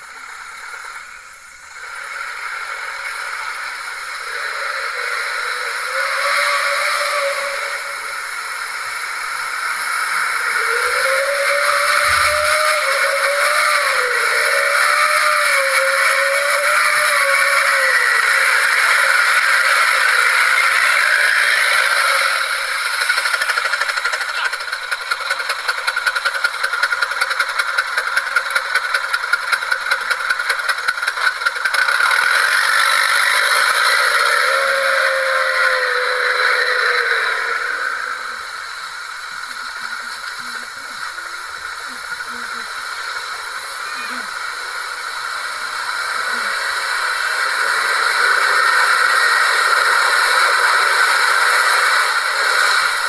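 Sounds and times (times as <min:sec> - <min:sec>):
fast rattle: 0:00.0 - 0:53.0
truck engine revving: 0:01.9 - 0:53.0.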